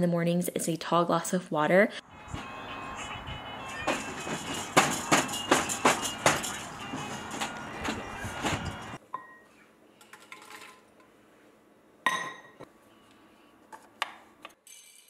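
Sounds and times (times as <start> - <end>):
kitchenware clink: 3.8 - 9.5, 12.1 - 12.7.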